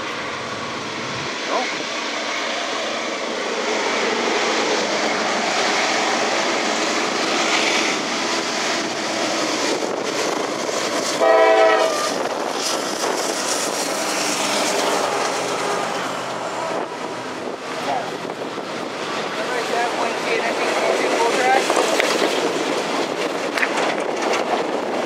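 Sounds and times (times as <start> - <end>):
freight train rolling: 0.0 - 25.0
train horn blast: 11.2 - 12.2.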